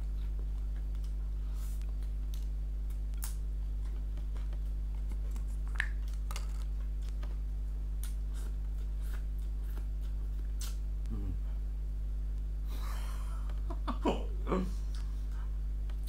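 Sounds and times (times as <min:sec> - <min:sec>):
low electrical hum: 0:00.0 - 0:16.0
mouth chewing clicks and smacks: 0:00.1 - 0:01.2, 0:01.8 - 0:07.4, 0:08.0 - 0:10.8.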